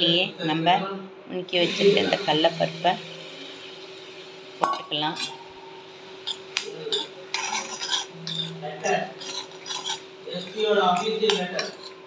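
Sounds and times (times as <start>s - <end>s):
spoon scraping steel pan: 6.2s - 12.0s.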